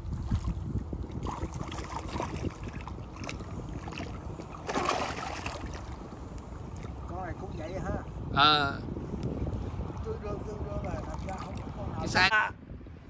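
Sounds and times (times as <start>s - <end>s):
water splashing and sloshing: 0.0s - 7.4s, 10.6s - 12.0s
wind rumble on microphone: 0.0s - 13.0s.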